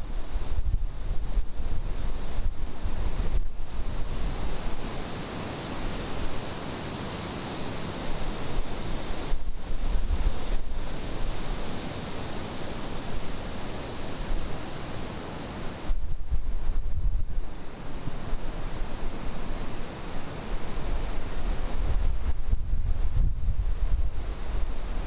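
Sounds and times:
wind buffeting microphone: 0.0 - 4.9, 8.1 - 11.8, 15.8 - 19.7, 20.4 - 25.0
river roaring through rapids: 0.0 - 25.0.

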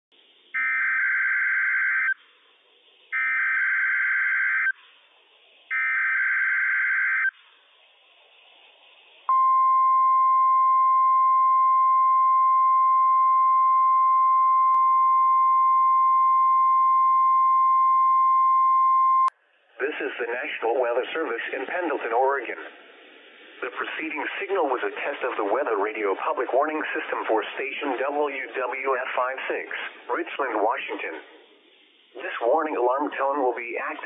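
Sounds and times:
faint radio hiss: 2.2 - 3.3, 4.6 - 5.8, 7.3 - 9.5, 19.3 - 34.0
steady alarm tone: 3.1 - 4.8, 5.7 - 7.4.

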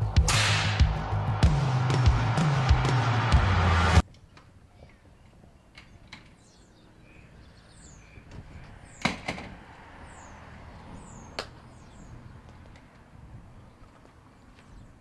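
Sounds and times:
small birds chirping: 4.2 - 9.3, 10.0 - 15.0.

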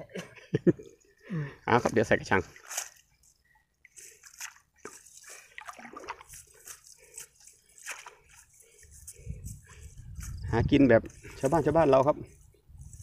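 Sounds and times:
water sloshing and splashing: 1.0 - 10.0.

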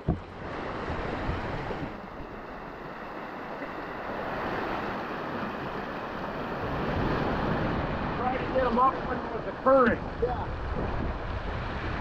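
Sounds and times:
surf breaking over rocks: 0.0 - 12.0.

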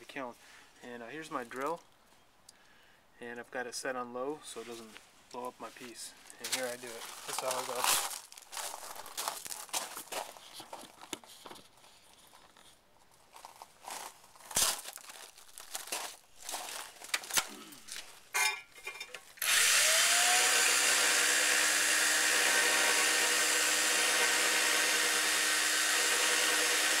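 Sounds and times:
electric drill drilling into tile: 19.4 - 27.0.

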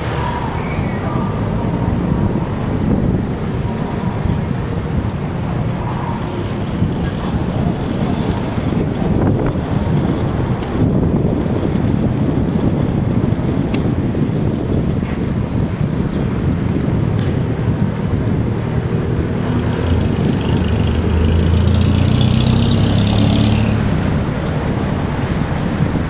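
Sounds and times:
street traffic: 0.0 - 26.0
wind buffeting microphone: 0.0 - 26.0.

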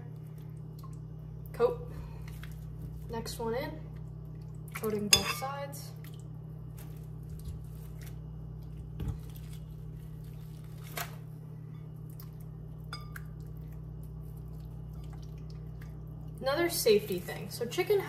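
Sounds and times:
steady low hum: 0.0 - 18.0
meat squishing in marinade: 2.1 - 3.2, 6.0 - 16.4.

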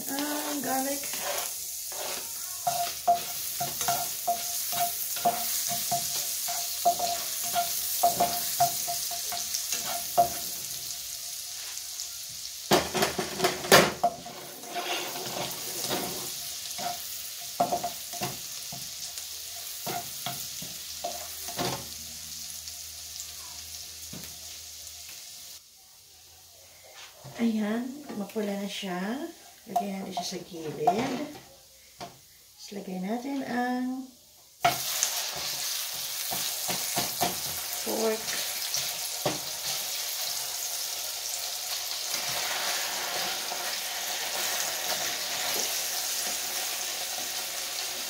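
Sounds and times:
garlic sizzling in butter: 0.0 - 26.2, 26.8 - 48.0
spatula scraping and tapping pan: 0.2 - 10.6, 12.7 - 19.0, 19.8 - 21.9, 29.7 - 32.2, 34.6 - 39.9.

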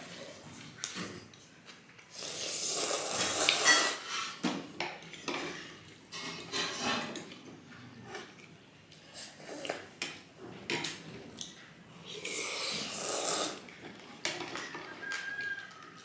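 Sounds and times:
noodles slurped loudly: 2.1 - 4.1, 12.1 - 13.8
cutlery clinking against bowls: 3.2 - 7.5.

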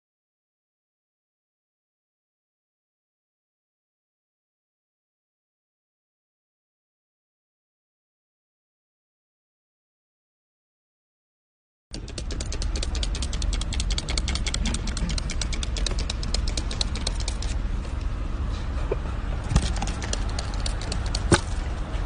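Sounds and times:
toy water gun clicking: 11.9 - 17.6
low rumble: 12.8 - 22.0.

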